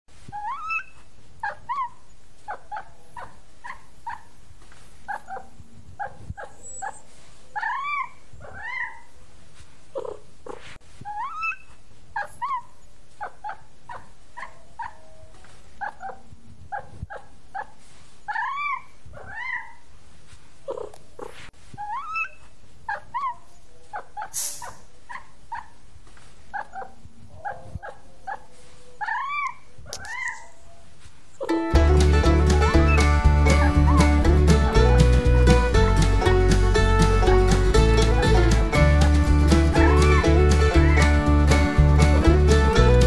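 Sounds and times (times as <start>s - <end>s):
cats meowing and chirping: 7.6s - 9.1s, 29.0s - 30.7s.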